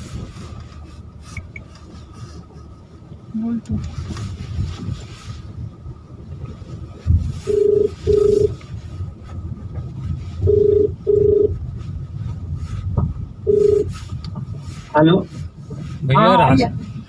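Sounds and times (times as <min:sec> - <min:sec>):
car rumbling over dirt track: 0:00.0 - 0:17.0
phone ringback tone beeps: 0:07.5 - 0:08.6, 0:10.5 - 0:11.6, 0:13.5 - 0:13.9.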